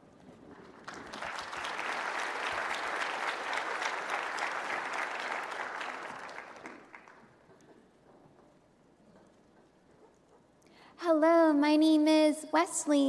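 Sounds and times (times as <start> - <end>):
large audience applauding: 0.4 - 7.5.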